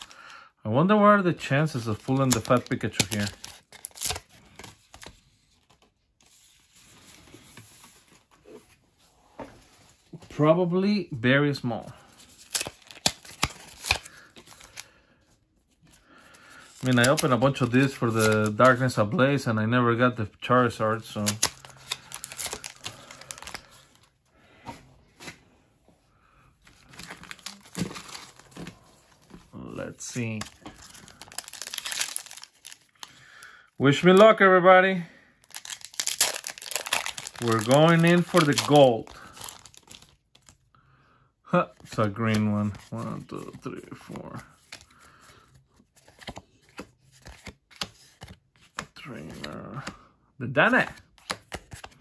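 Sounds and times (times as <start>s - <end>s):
foil packs rustling: 1.7s - 5.0s, 21.2s - 24.0s, 26.7s - 33.4s, 35.4s - 40.6s.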